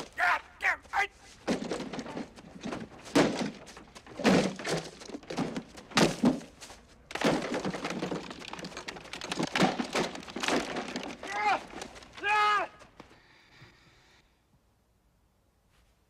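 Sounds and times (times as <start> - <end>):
plastic decorations thudding: 1.4 - 12.3.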